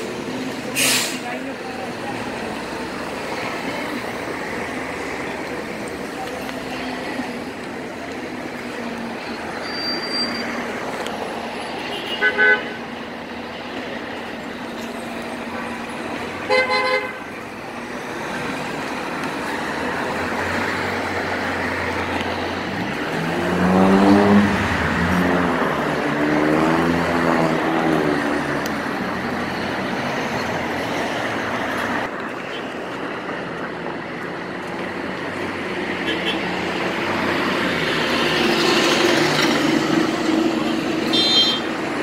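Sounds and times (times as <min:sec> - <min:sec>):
busy street traffic: 0:00.0 - 0:42.0
heavy vehicle engine: 0:00.0 - 0:42.0
car horn toots: 0:41.1 - 0:41.7.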